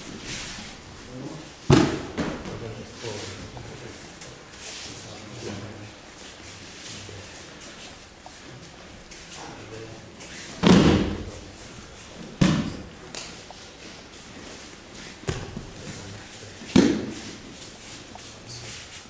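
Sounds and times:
body thudding on a mat: 0:10.6 - 0:11.3, 0:15.2 - 0:15.8.

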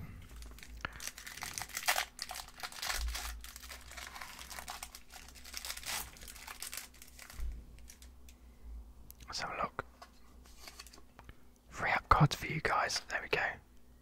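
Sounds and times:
plastic wrapper tearing and crinkling: 0:00.2 - 0:08.1.

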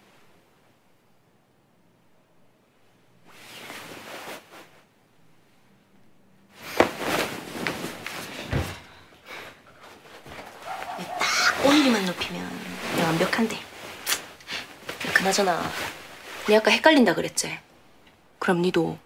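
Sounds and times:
bedding rustling: 0:02.7 - 0:05.9, 0:06.5 - 0:17.5
dull thump: 0:08.4 - 0:08.9.

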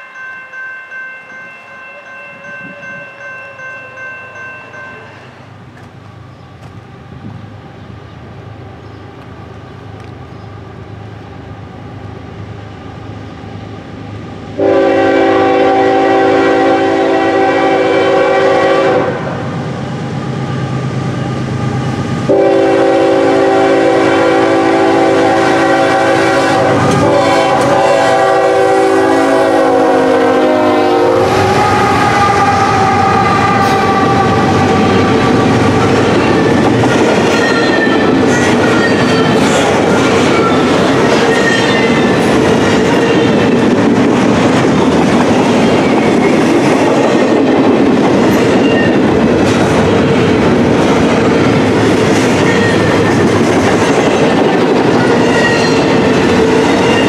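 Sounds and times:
train running past: 0:00.0 - 0:57.0
locomotive air horn: 0:14.6 - 0:19.4, 0:22.3 - 0:35.7.

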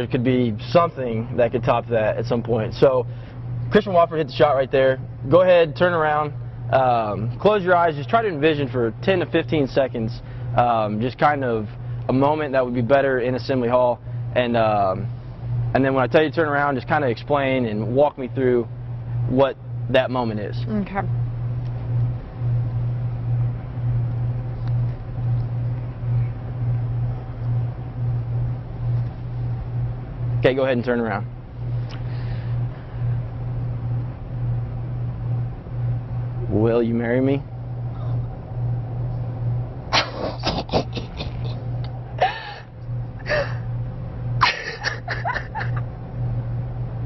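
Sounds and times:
low pulsing hum: 0:00.0 - 0:47.0
woman gasping and laughing: 0:42.2 - 0:42.6, 0:43.2 - 0:43.6.

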